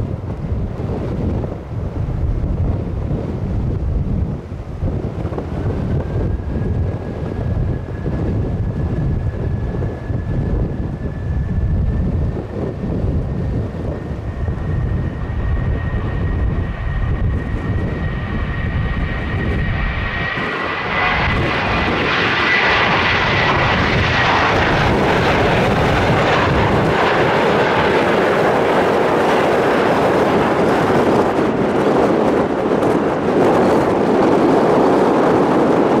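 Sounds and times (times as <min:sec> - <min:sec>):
jet engines throttling up: 0:04.4 - 0:36.0.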